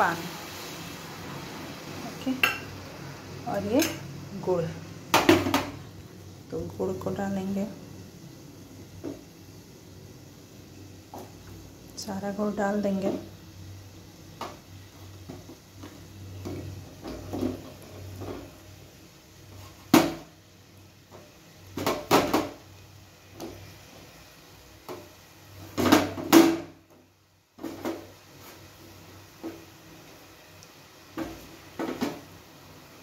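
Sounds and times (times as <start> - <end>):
lumps knocking against a pan: 5.1 - 5.8, 21.7 - 22.6, 31.1 - 32.3.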